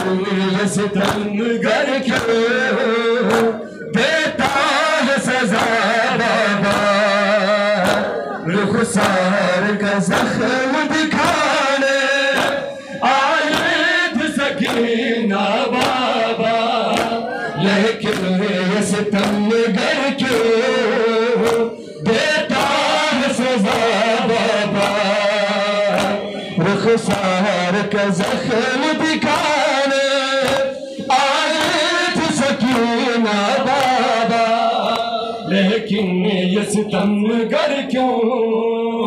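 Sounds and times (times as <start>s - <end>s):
men chanting a lament: 0.0s - 39.0s
hands beating on chests: 1.0s - 1.3s, 2.1s - 2.4s, 3.3s - 3.6s, 5.5s - 5.8s, 6.7s - 7.0s, 7.8s - 8.2s, 9.0s - 9.2s, 10.1s - 10.4s, 11.2s - 11.6s, 12.3s - 12.7s, 13.4s - 13.8s, 14.6s - 15.0s, 15.8s - 16.1s, 16.9s - 17.3s, 18.0s - 18.5s, 19.2s - 19.5s, 20.2s - 20.6s, 21.4s - 21.8s, 22.5s - 22.9s, 23.6s - 24.0s, 24.7s - 25.2s, 25.9s - 26.3s, 28.2s - 28.5s, 30.4s - 30.7s, 32.6s - 32.9s.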